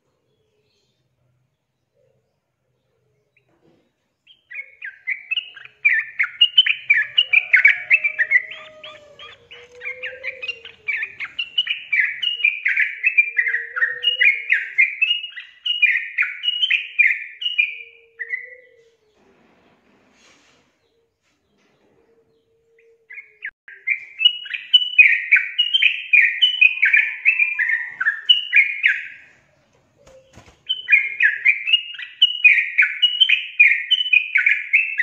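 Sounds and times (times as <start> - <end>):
bulbul chattering song: 4.3 - 17.9.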